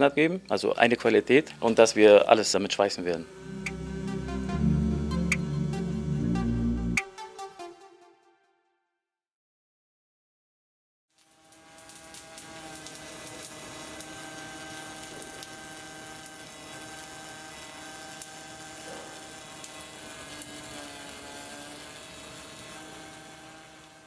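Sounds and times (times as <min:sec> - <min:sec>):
welding arc crackling and hissing: 0:00.0 - 0:03.8, 0:11.1 - 0:24.0
machine hum: 0:01.0 - 0:07.0.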